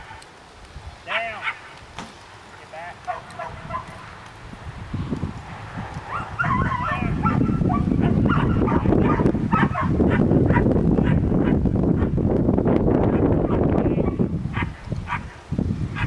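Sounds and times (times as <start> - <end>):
dog barking and yipping: 1.1 - 1.7, 2.5 - 4.2, 6.0 - 12.2, 13.1 - 15.4
wind rumble on microphone: 2.9 - 16.0.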